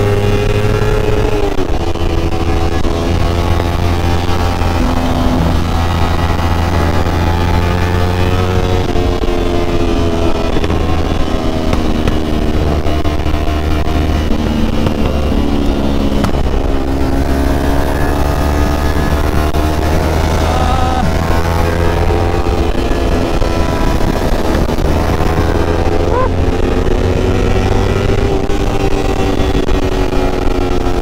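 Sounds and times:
low wind rumble: 0:00.0 - 0:31.0
motorcycle engine running: 0:00.0 - 0:31.0.

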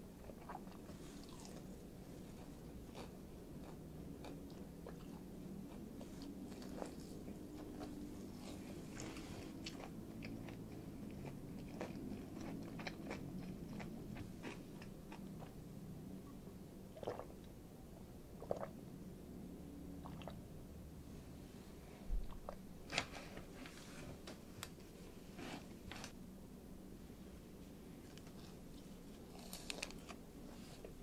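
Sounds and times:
crunchy chewing: 0:00.2 - 0:15.6, 0:28.1 - 0:31.0
wet mouth sounds: 0:17.0 - 0:17.3, 0:18.4 - 0:18.7, 0:20.0 - 0:20.4.

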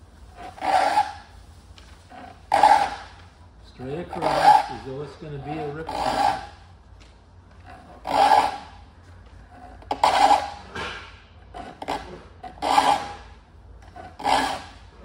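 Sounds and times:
file rasping on saw teeth: 0:00.4 - 0:01.3, 0:02.1 - 0:03.1, 0:04.1 - 0:04.8, 0:05.4 - 0:06.6, 0:07.7 - 0:08.8, 0:09.8 - 0:10.7, 0:11.6 - 0:14.8.

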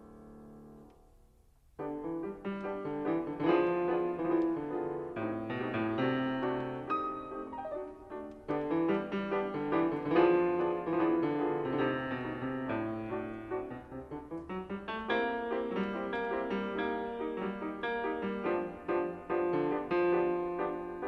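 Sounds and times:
piano music: 0:01.8 - 0:21.0.

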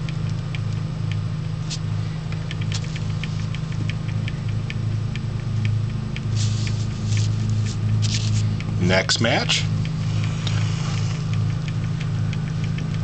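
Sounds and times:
steady low hum: 0:00.0 - 0:13.0
light ticks: 0:02.3 - 0:13.0
rustling near microphone: 0:06.3 - 0:08.8.

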